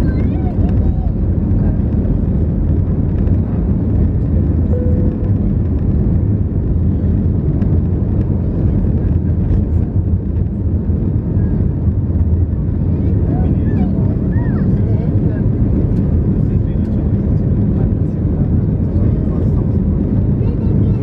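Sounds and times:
jet engine drone in cabin: 0:00.0 - 0:21.0.

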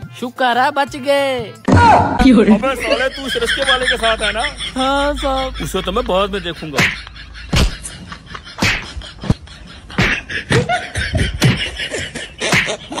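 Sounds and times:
slap and punch hits: 0:06.8 - 0:07.9, 0:08.6 - 0:09.0, 0:10.0 - 0:10.7, 0:12.5 - 0:12.8.

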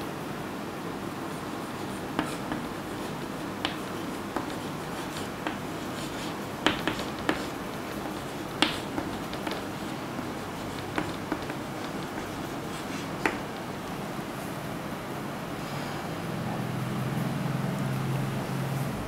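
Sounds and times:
room noise: 0:00.0 - 0:19.0
chalk tapping on blackboard: 0:01.3 - 0:13.8.

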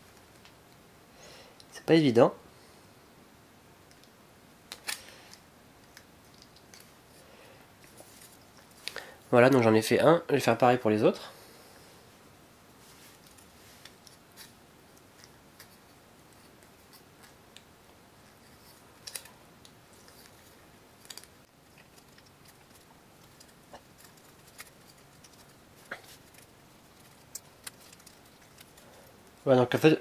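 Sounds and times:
small parts clicking: 0:26.2 - 0:29.4.

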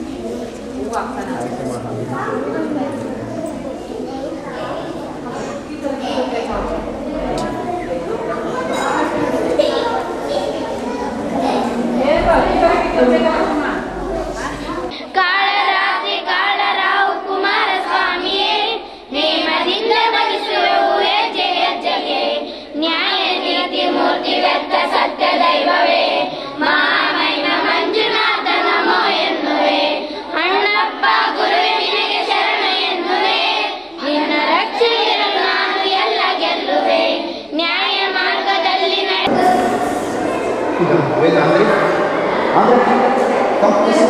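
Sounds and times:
children singing in chorus: 0:08.3 - 0:44.0.

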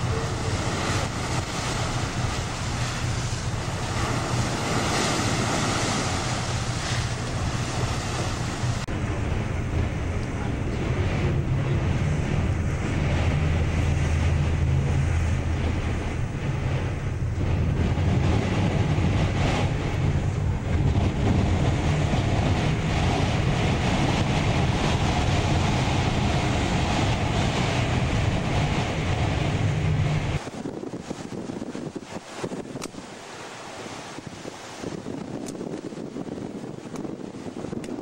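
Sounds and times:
ship engine droning: 0:00.0 - 0:38.0
wind rushing on microphone: 0:00.0 - 0:38.0.

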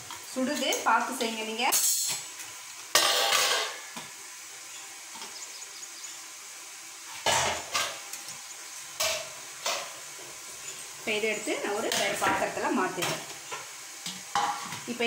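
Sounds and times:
metal vessels clanking: 0:03.0 - 0:03.8.

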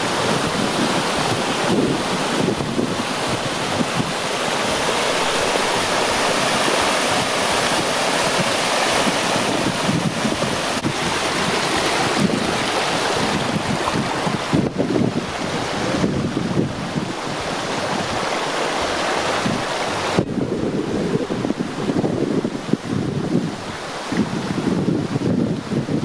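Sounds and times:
stream cascading over rocks: 0:00.0 - 0:26.0
wind buffeting microphone: 0:00.0 - 0:26.0.

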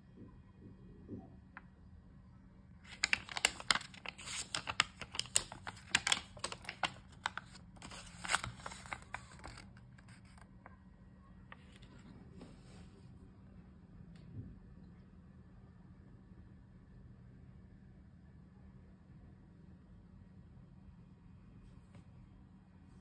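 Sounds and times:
paper banknote crackling: 0:02.8 - 0:10.5.

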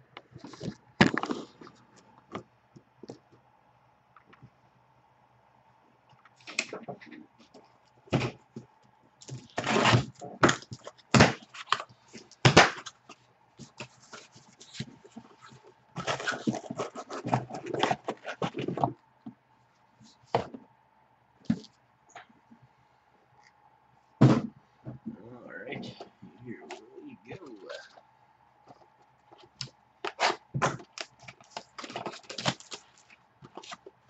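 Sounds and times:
cardboard rustling: 0:00.3 - 0:02.5, 0:09.2 - 0:19.0, 0:28.7 - 0:34.0
boxes thudding down: 0:24.2 - 0:24.5.

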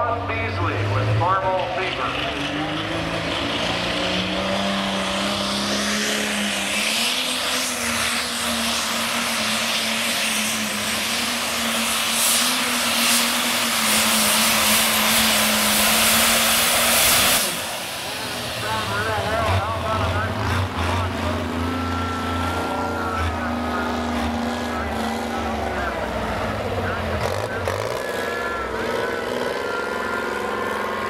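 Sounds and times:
tractor engine at full throttle: 0:00.0 - 0:31.0
dense noise: 0:10.9 - 0:31.0.

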